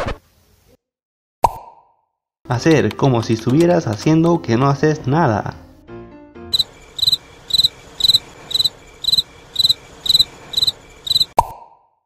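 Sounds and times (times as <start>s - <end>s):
cricket chirping: 6.5s - 11.4s.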